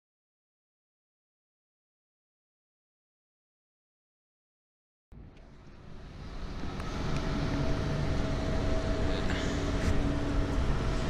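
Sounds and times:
cooling machinery droning: 5.2 - 11.0.

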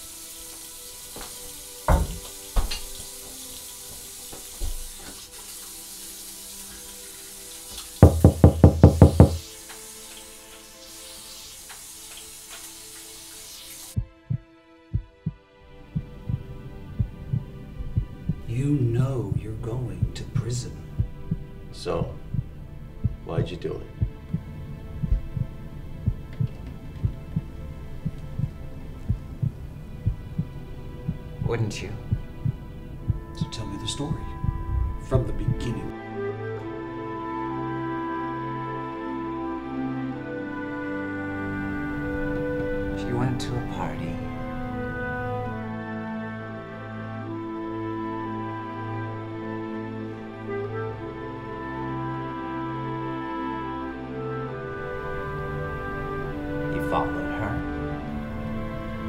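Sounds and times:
low hiss: 0.0 - 36.1
fast heavy knocks: 8.0 - 9.4
heartbeat double thump: 14.0 - 15.4, 16.0 - 18.4, 21.0 - 23.2, 24.0 - 31.2, 32.1 - 33.5, 34.4 - 35.6
droning music bed: 14.0 - 59.0.

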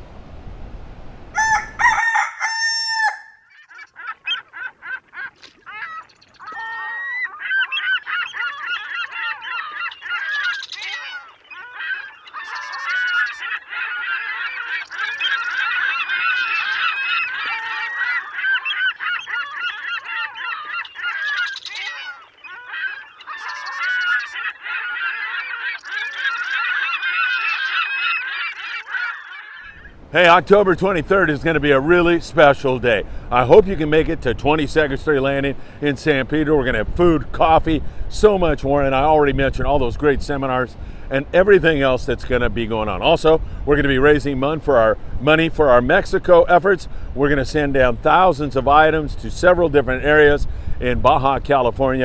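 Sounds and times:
flock of birds honking: 1.4 - 29.9.

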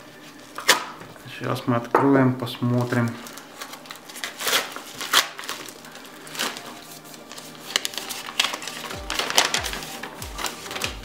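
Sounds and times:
plastic mailer crinkling: 2.6 - 11.0
paper unfolding: 2.7 - 11.0
music with thumping beat: 8.9 - 11.0.

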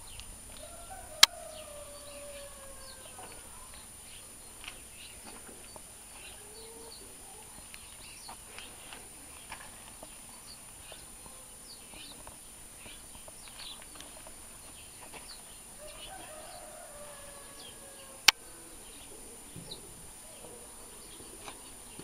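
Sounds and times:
low bird call: 0.0 - 14.4
chickens clucking: 0.0 - 22.0
small birds chirping: 0.0 - 22.0.

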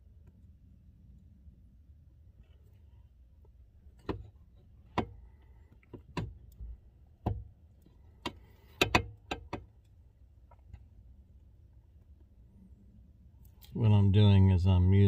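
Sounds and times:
steering shaft clicks and knocks: 3.4 - 10.9.

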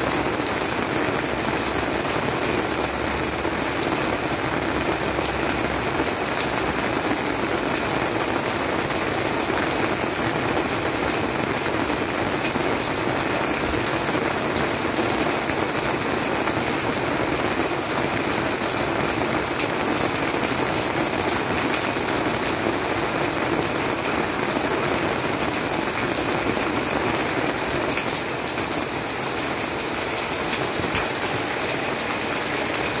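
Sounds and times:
heavy rain falling: 0.0 - 33.0.

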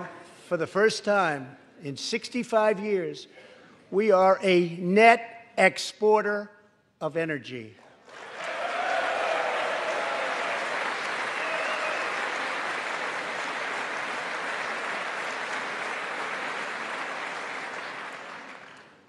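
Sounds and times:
audience clapping: 8.0 - 19.0.

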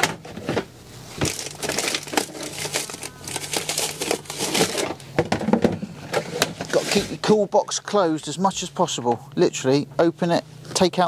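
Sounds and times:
plastic rustling and crinkling: 0.4 - 7.3.

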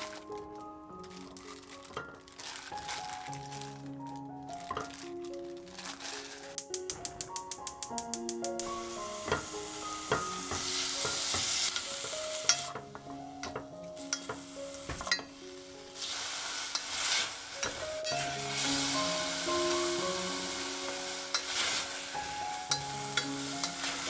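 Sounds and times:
beef sizzling in a pot: 0.0 - 24.0
spatula clicking against pot: 6.6 - 8.7, 13.4 - 14.4.

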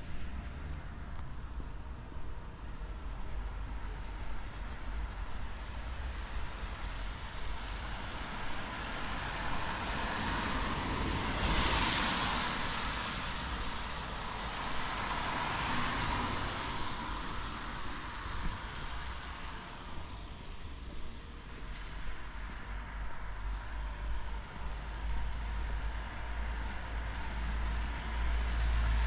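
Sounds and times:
car tyres hissing on wet road: 5.8 - 19.6, 25.9 - 29.0.

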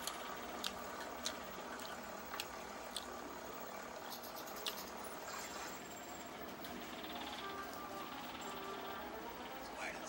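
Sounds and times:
chewing with wet mouth smacks: 0.0 - 3.1
steady background hiss: 0.0 - 10.0.

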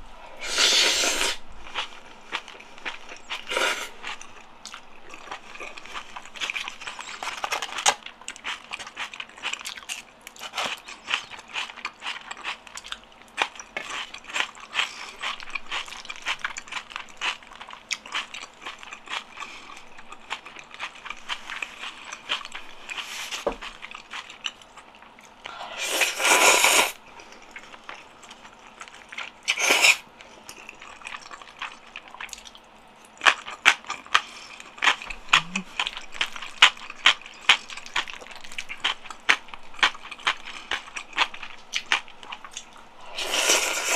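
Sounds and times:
person chewing noodles: 0.2 - 43.9.

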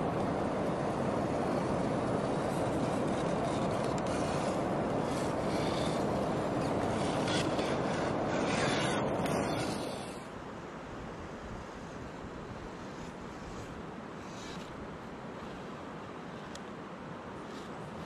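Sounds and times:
tyres scraping on stone: 2.6 - 10.3.

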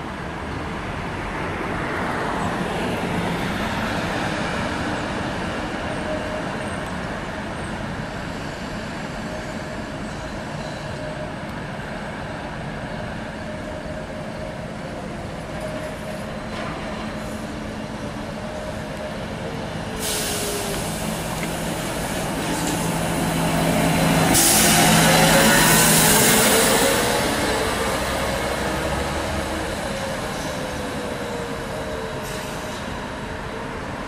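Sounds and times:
street traffic: 0.0 - 34.0
hiss: 20.0 - 21.6, 24.3 - 25.1.

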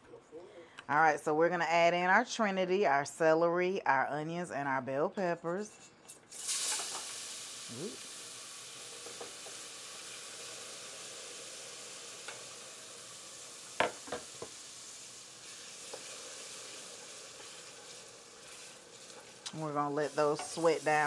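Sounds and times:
vegetables sizzling in oil: 6.2 - 21.0
vegetables being stirred: 17.3 - 21.0.

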